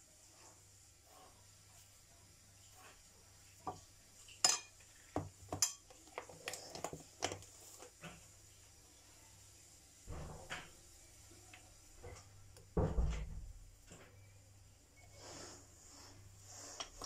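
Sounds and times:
metal spoon clinking on glass bowl: 4.4 - 4.8, 5.5 - 5.9.

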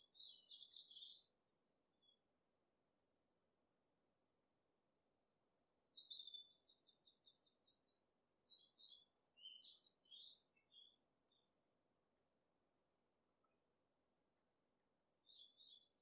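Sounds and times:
songbird singing: 0.0 - 1.4, 2.0 - 2.2, 5.4 - 12.1, 15.2 - 16.0.

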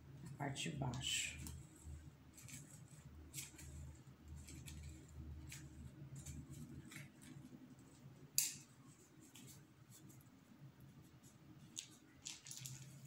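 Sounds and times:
stick scratching in potting soil: 1.4 - 7.5.

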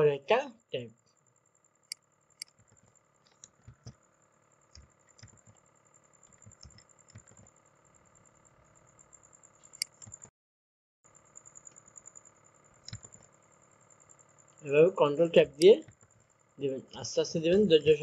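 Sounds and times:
mouse clicks: 4.8 - 5.6, 6.3 - 7.5, 9.7 - 10.3, 12.8 - 13.2.

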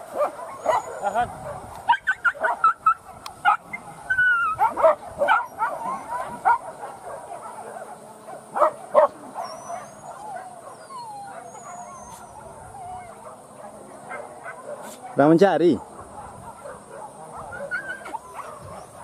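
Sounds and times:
dogs barking and yelping: 0.0 - 19.0
dogs whining and whimpering: 0.4 - 1.0, 3.7 - 6.4, 9.2 - 13.3, 17.4 - 19.0.

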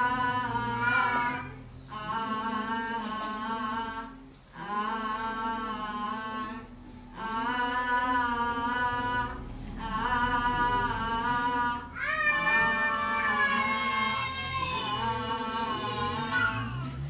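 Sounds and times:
person singing slow melody: 0.0 - 17.0.

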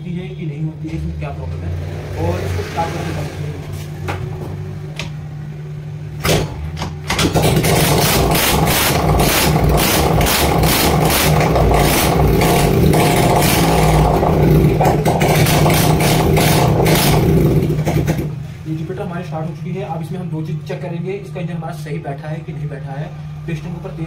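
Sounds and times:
scooter engine starting and running: 6.2 - 18.6.

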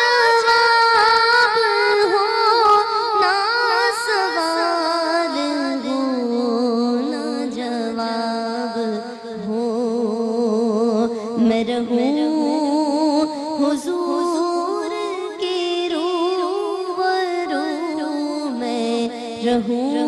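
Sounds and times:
solo voice singing devotional song: 0.0 - 20.0.

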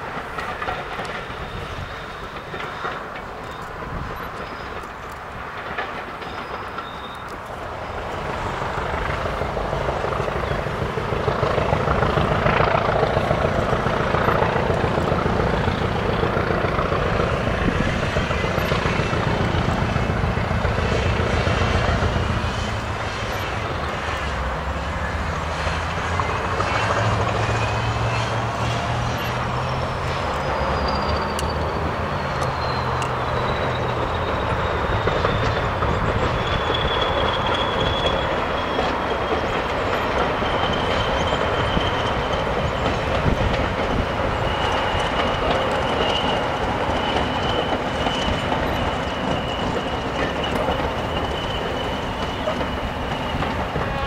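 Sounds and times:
diesel locomotive engine droning: 0.0 - 54.0.

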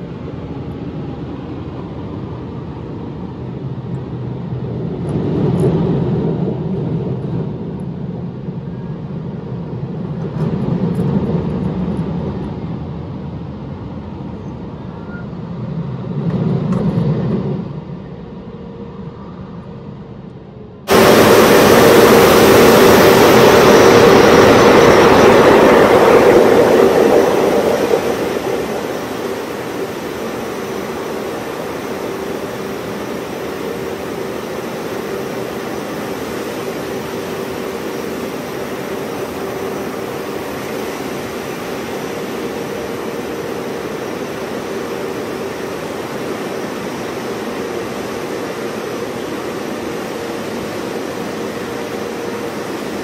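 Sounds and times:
machinery hum: 0.0 - 10.9, 15.6 - 53.0
water spray rushing: 20.9 - 48.1.

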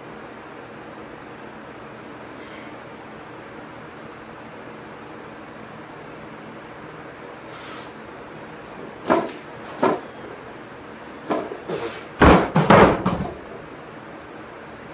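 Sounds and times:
heavy thuds and plate clatter: 9.0 - 10.1, 11.2 - 13.6
barbell knocking: 12.2 - 13.5.

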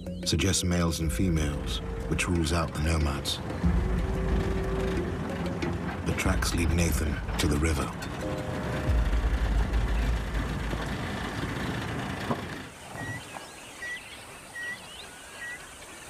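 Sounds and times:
vehicle driving on dirt track: 1.3 - 15.1
faint bird calls: 12.7 - 16.0.

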